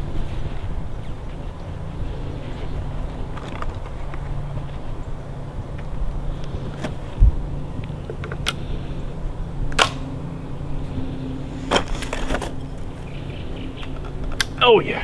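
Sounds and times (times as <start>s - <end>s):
low hum: 0.0s - 15.0s
shotgun metallic clicks: 9.7s - 10.1s, 13.8s - 14.6s.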